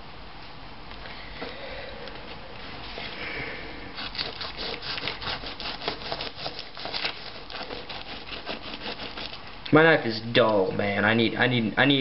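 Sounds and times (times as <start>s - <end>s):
knife scraping fish skin: 4.0s - 9.4s.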